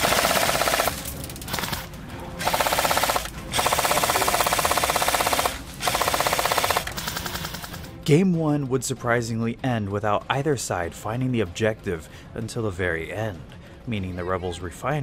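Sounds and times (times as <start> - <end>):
airsoft machine gun bursts: 0.0 - 7.9.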